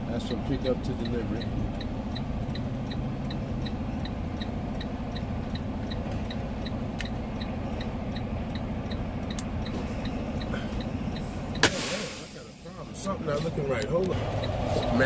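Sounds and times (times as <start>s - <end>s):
diesel engine running: 0.0s - 15.0s
quick even ticking: 0.2s - 11.6s.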